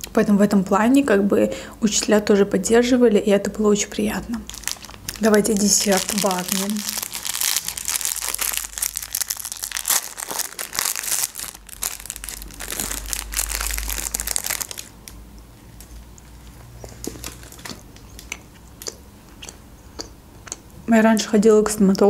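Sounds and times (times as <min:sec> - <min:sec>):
plastic wrapper crinkling: 0:04.3 - 0:18.3.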